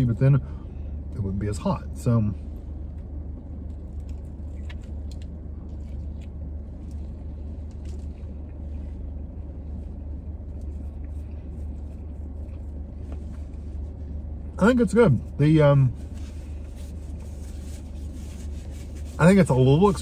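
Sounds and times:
low rumble inside car: 0.0s - 20.0s.

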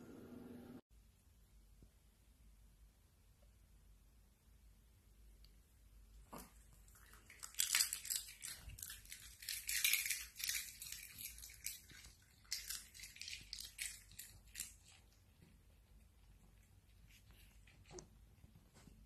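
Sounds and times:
puppies crunching a hard treat: 6.3s - 15.5s.

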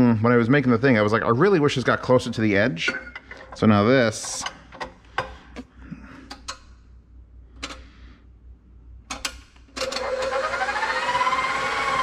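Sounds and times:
stand mixer motor whirring: 9.8s - 12.0s.

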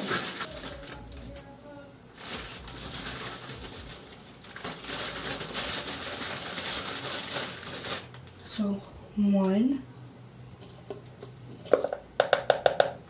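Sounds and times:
plastic container rustling and scraping: 0.0s - 1.4s, 2.2s - 8.1s.

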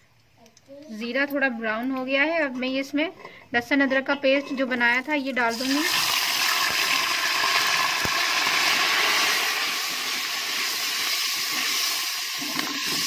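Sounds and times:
paste sizzling in hot oil: 5.5s - 13.0s.

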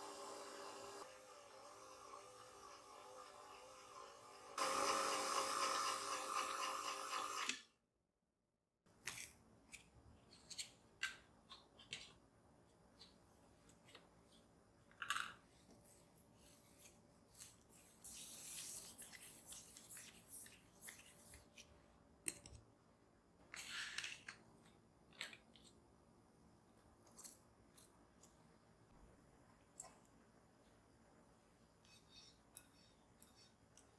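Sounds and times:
hands rubbing bread dough: 15.8s - 21.6s.

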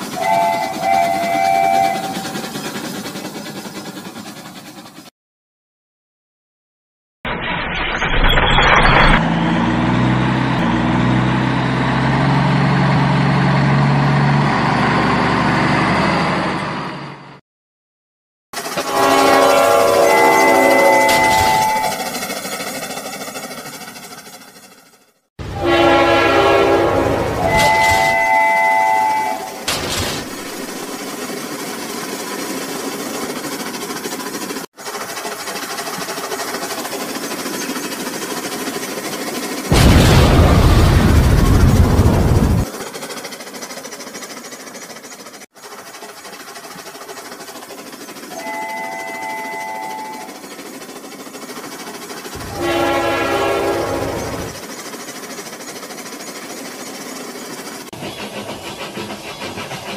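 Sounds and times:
gears and wheels rattling: 0.0s - 5.1s, 18.6s - 25.3s, 27.3s - 59.9s.

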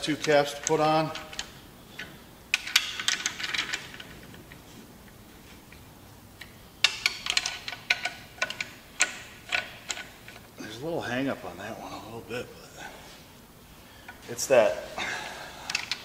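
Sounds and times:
hand ratchet clicking: 6.4s - 10.4s.

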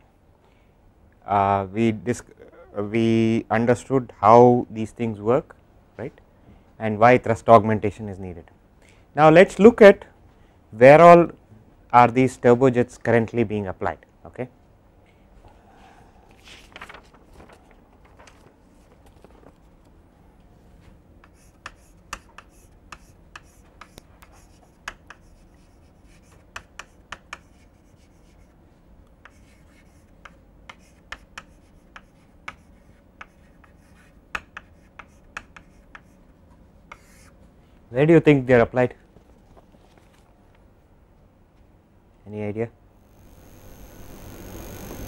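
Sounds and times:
chalk tapping on chalkboard: 21.2s - 28.5s, 29.2s - 36.2s
chalk scratching on chalkboard: 21.3s - 28.6s, 29.2s - 36.2s, 36.9s - 37.3s.

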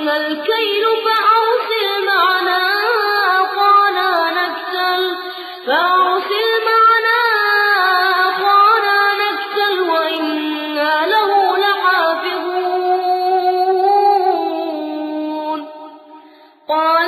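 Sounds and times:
person reciting melodically: 0.0s - 15.8s.

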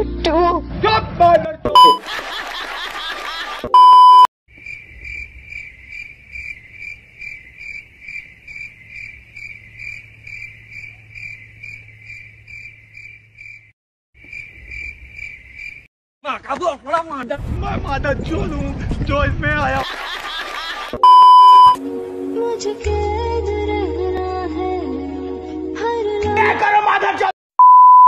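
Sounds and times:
short loud beep: 1.8s - 2.0s, 3.8s - 4.3s, 21.0s - 21.8s, 27.6s - 28.0s
cricket chirping: 4.5s - 15.9s.

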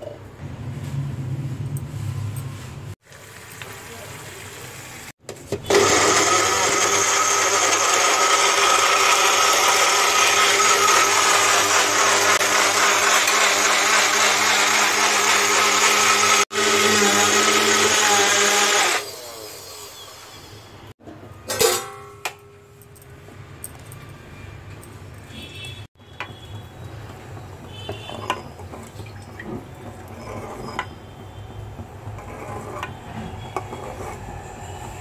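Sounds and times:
blender motor grinding: 5.6s - 20.0s.

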